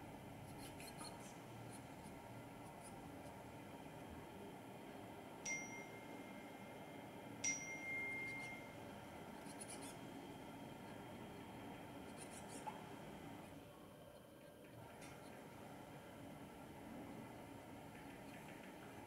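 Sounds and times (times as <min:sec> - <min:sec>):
small metal chime ringing: 0:05.4 - 0:06.5, 0:07.4 - 0:08.8.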